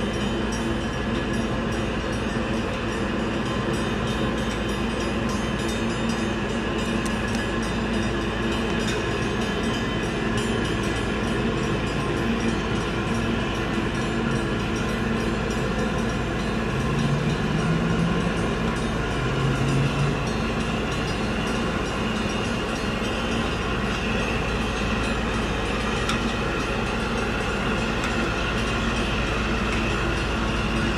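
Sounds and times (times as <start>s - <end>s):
diesel engines droning: 0.0s - 30.9s.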